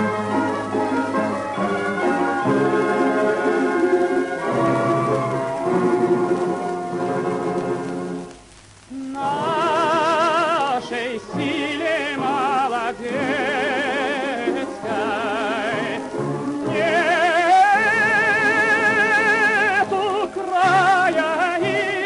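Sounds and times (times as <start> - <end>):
orchestral accompaniment: 0.0 - 8.4, 9.3 - 22.0
soprano voice singing: 8.9 - 22.0.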